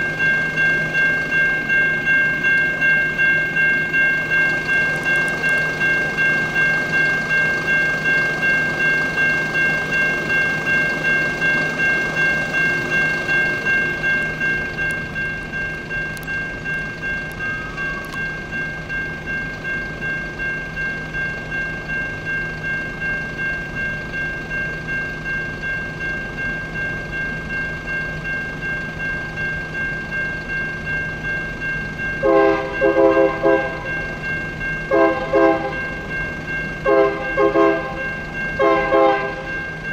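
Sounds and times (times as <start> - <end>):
railroad crossing bell dinging: 0.0 - 39.9
locomotive air horn: 32.2 - 33.8, 34.9 - 35.8, 36.9 - 38.0, 38.6 - 39.5.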